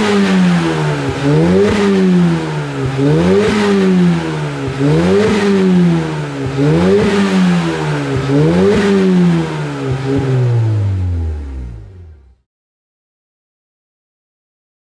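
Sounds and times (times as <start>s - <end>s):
car engine revving: 0.0s - 12.4s.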